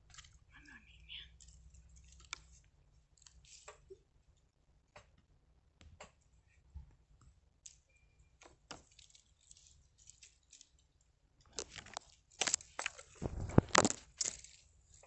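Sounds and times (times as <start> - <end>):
leaves and twigs rustling: 0.0 - 4.0, 8.6 - 15.0
twigs clicking and snapping: 1.3 - 4.0, 8.4 - 15.0.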